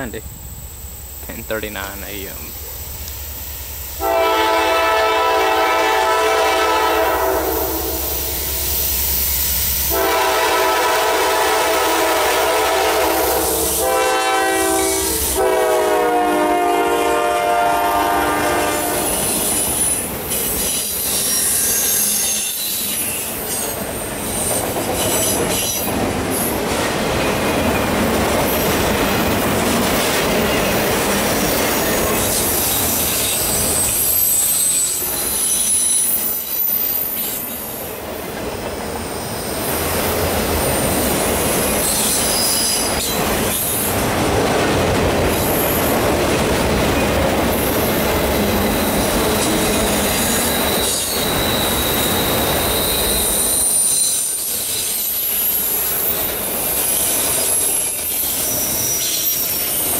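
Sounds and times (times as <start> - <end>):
train cars rumbling by: 0.0 - 59.9
locomotive horn blasts: 4.0 - 8.1, 9.9 - 19.2
wheel squeal: 19.1 - 25.9, 31.4 - 37.5, 41.7 - 43.8, 48.4 - 59.9.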